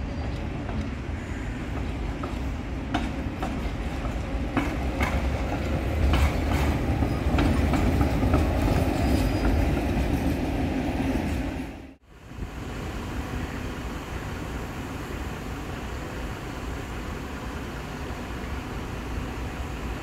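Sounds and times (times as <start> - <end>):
tram rumbling on rails: 0.0 - 20.0
wheels clicking over rail joints: 1.7 - 10.6.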